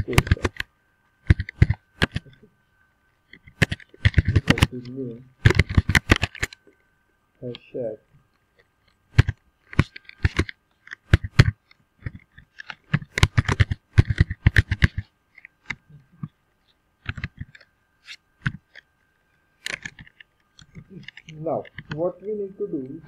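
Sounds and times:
computer keyboard typing: 0.0s - 2.4s, 3.4s - 6.6s, 9.1s - 15.8s, 17.0s - 17.7s, 19.6s - 23.0s.

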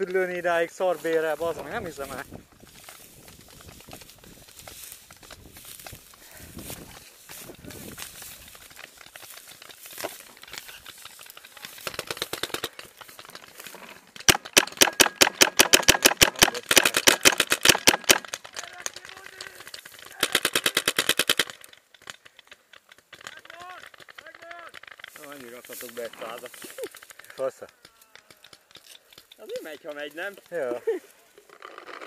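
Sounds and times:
paintball marker firing bursts: 10.0s - 13.0s, 14.2s - 26.4s.

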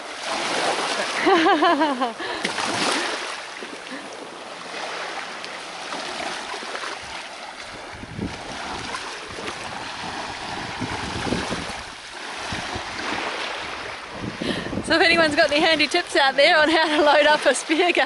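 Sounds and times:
small waves lapping: 0.0s - 18.0s
wind buffeting microphone: 7.0s - 18.0s.

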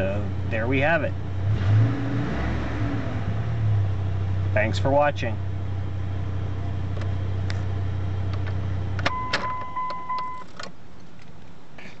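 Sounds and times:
ignition switch click: 8.3s - 10.8s
electronic warning chime: 9.1s - 10.4s.

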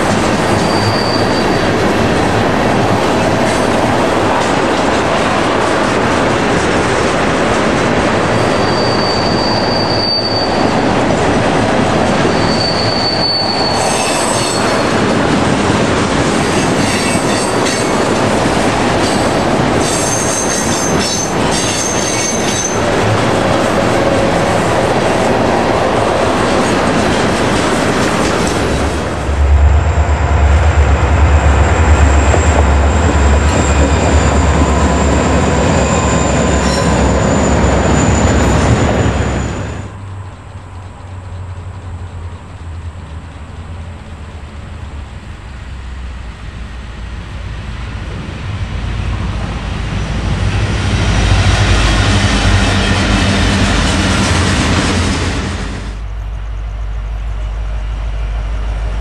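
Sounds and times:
steel wheels clattering on rails: 0.0s - 29.9s, 31.1s - 46.0s
high-pitched wheel squeals: 0.5s - 1.8s, 8.3s - 10.9s, 12.2s - 15.0s, 31.9s - 40.0s
deep low rumble: 29.1s - 34.0s.

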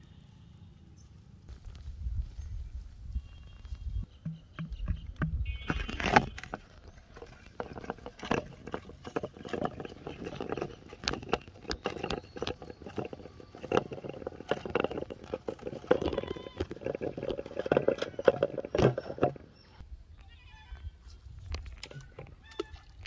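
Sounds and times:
twine rubbing on plastic bottle: 4.0s - 19.6s.

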